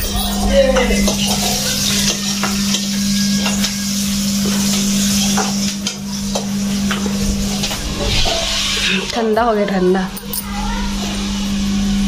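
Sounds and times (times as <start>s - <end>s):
vegetables sizzling in a pan: 0.0s - 9.3s
steady low hum: 0.0s - 12.0s
spatula scraping and tapping pan: 4.4s - 9.2s.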